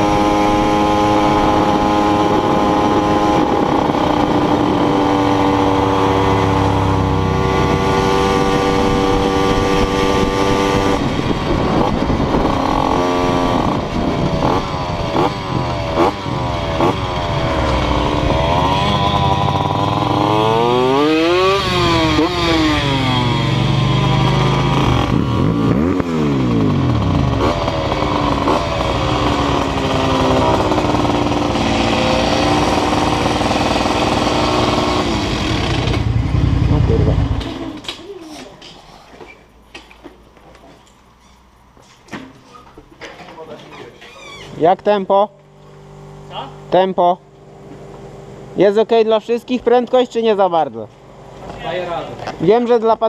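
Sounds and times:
moped engine revving: 0:00.0 - 0:38.2.

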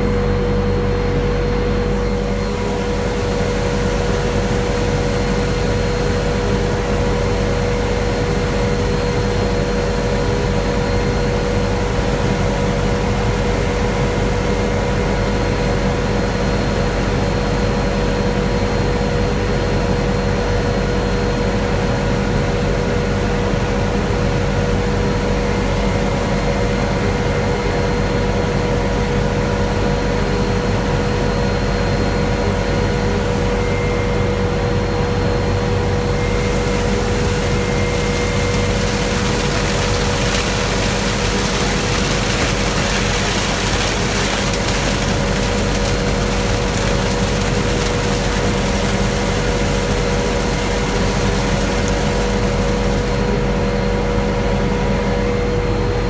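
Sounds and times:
helicopter rotor and turbine drone: 0:00.0 - 0:18.2, 0:31.5 - 0:38.4.

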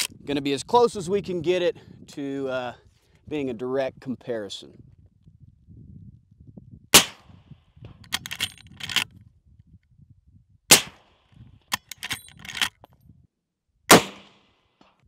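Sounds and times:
suppressed rifle shots: 0:06.9 - 0:07.4, 0:10.7 - 0:11.2, 0:13.9 - 0:14.6
rifle lever metallic clacks: 0:08.0 - 0:09.1, 0:11.7 - 0:12.9.

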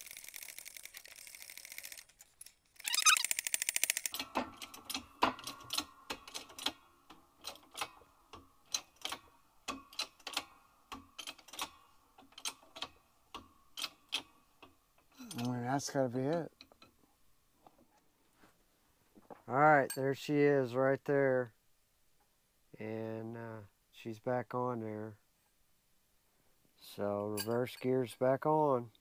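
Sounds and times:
rapid ratcheting clicks: 0:00.0 - 0:06.8
metallic clicks and ticks: 0:00.0 - 0:17.0.

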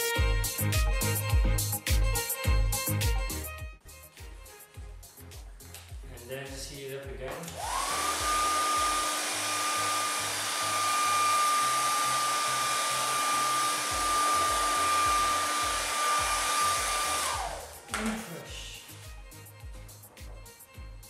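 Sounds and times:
steady-beat background music: 0:00.0 - 0:09.1, 0:13.5 - 0:21.0
hair dryer whining: 0:07.3 - 0:19.4.

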